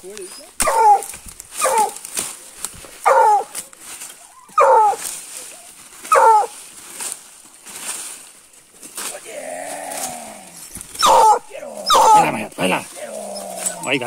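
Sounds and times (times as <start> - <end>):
twigs and leaf litter crackling: 0.0 - 14.0
dog barking: 0.6 - 2.0, 3.0 - 3.6, 4.5 - 5.0, 6.1 - 6.5, 11.0 - 12.4.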